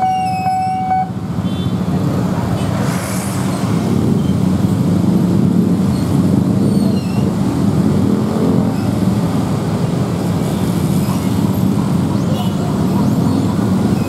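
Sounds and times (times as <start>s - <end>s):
cars passing: 0.0s - 14.0s
motorcycle and scooter engines: 0.0s - 14.0s.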